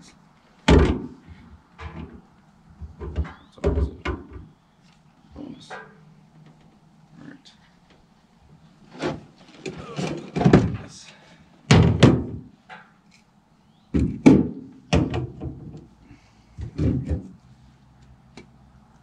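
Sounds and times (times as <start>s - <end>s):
parts clunking and knocking: 0.6s - 4.5s, 8.9s - 11.0s, 11.7s - 13.0s, 13.9s - 17.5s.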